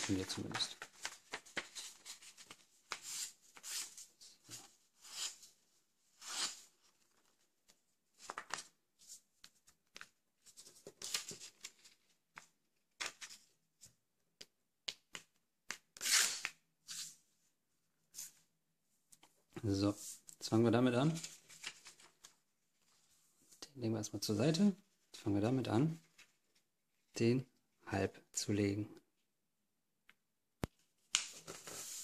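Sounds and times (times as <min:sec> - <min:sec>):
paper rustling and folding: 0:00.0 - 0:05.6, 0:06.2 - 0:13.6, 0:21.0 - 0:23.2, 0:31.0 - 0:32.0.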